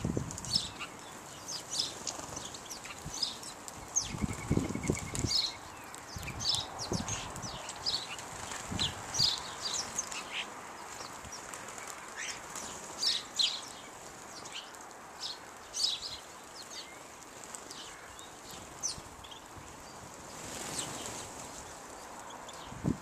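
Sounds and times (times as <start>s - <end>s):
sparrows chirping: 0.0s - 23.0s
bird wings fluttering: 1.8s - 6.4s, 11.0s - 13.2s, 20.2s - 21.9s.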